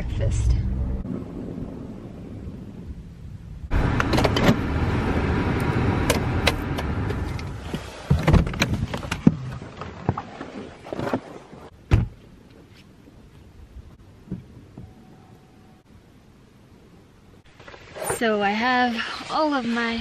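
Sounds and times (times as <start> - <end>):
car door low thud: 11.9 - 12.2.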